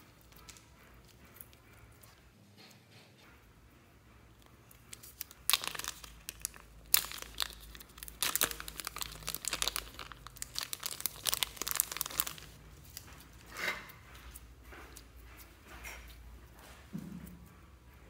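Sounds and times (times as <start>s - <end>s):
plastic bag crinkling: 4.9s - 13.0s.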